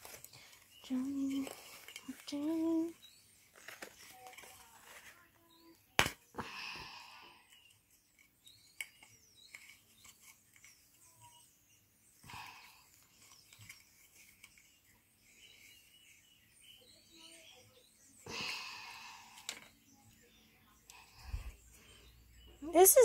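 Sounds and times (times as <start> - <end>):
soft rustle: 0.0 - 5.7, 12.8 - 17.5.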